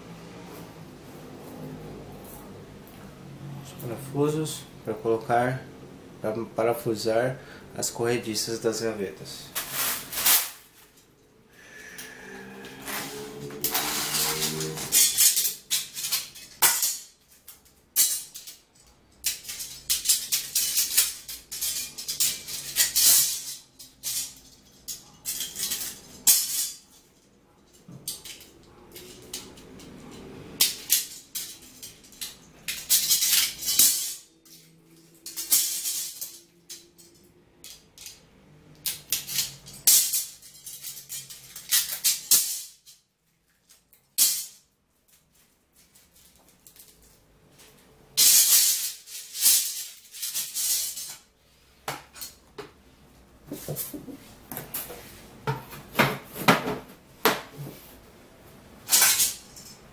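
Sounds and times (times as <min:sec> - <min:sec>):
metal parts clinking and clattering: 0:09.4 - 0:11.2, 0:12.0 - 0:51.3, 0:58.8 - 0:59.9.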